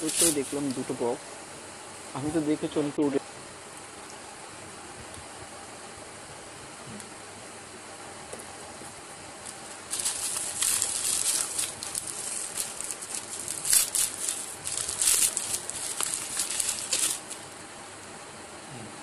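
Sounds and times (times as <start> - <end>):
plastic packaging crinkling: 0.0 - 0.9, 9.4 - 17.5.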